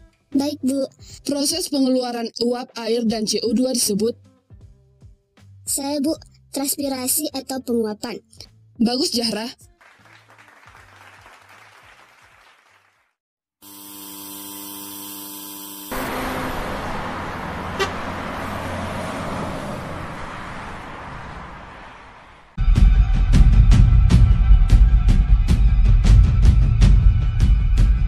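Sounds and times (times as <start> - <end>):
street traffic noise: 15.9 - 22.6
car horn held note: 17.7 - 18.0.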